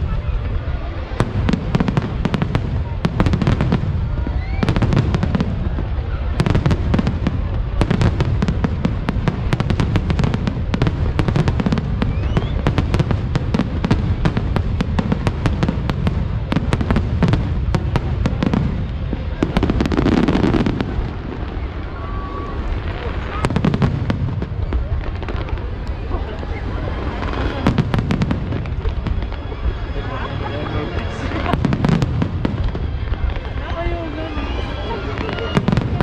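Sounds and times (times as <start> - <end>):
firework bangs and crackles: 0.0 - 36.0
low rumble of bursting shells: 1.2 - 21.8.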